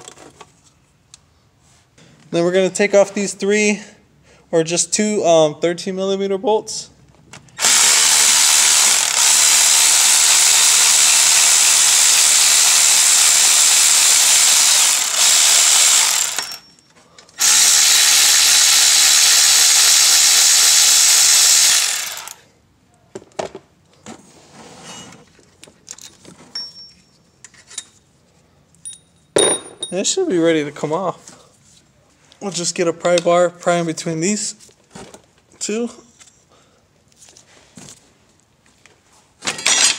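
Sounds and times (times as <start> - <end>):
cordless power tool running: 7.6 - 16.6, 17.4 - 22.4.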